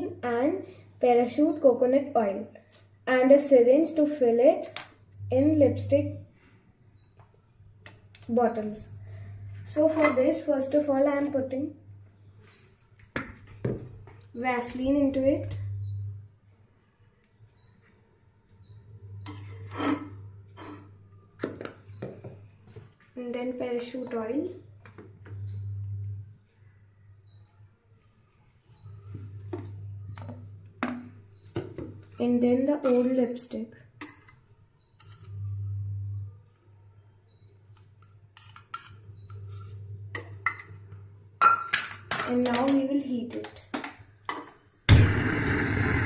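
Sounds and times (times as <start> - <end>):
low steady hum: 5.0 - 6.5, 7.4 - 12.7, 13.5 - 16.6, 18.3 - 34.2, 35.1 - 37.0, 37.7 - 43.2
metal utensils scraping a pan: 19.2 - 21.0, 32.0 - 33.4.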